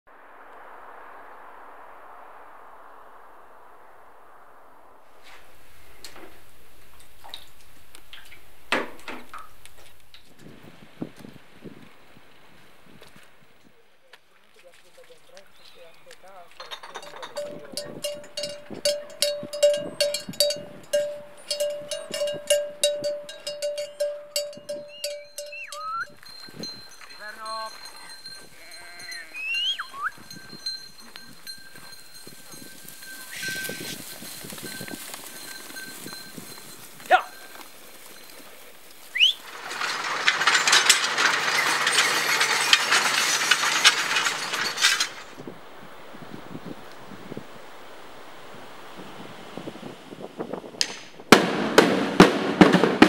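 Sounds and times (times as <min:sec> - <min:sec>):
dense rattling clatter: 0:16.6 - 0:25.6, 0:39.4 - 0:45.4
cowbell clanking: 0:16.6 - 0:38.4, 0:39.3 - 0:45.3
rising whistle-like call: 0:24.8 - 0:26.2, 0:29.0 - 0:30.3, 0:33.2 - 0:34.0, 0:39.1 - 0:39.5.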